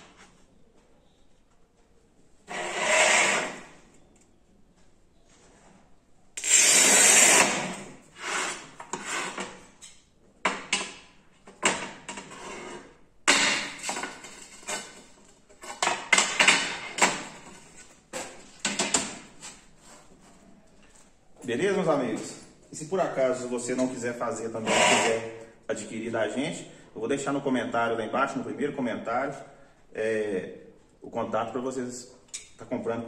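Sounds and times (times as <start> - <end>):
tile cutter wheel scraping: 2.5 - 3.8, 6.4 - 9.7, 12.1 - 17.2, 24.6 - 25.4.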